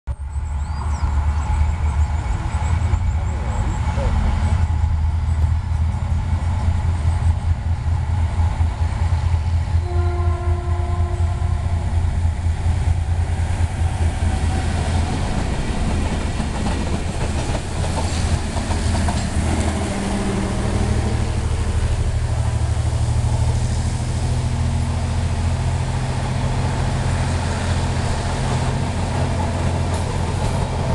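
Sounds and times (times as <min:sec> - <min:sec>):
locomotive engine rumble: 0:00.1 - 0:30.9
train horn blast: 0:09.7 - 0:11.9.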